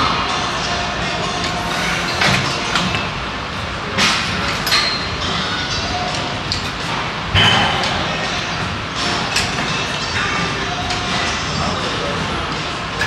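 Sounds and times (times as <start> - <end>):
weight stack clanking: 1.2 - 8.1.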